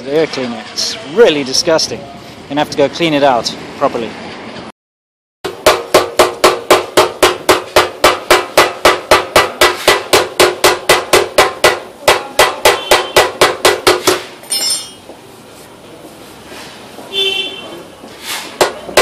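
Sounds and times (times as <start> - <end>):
hammer striking metal tank: 5.5 - 14.3.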